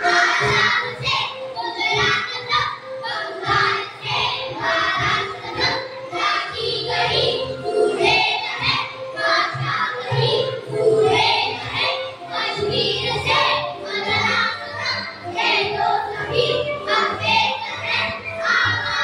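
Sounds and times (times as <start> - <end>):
children singing together: 0.0 - 19.0
musical accompaniment with bass: 0.0 - 19.0.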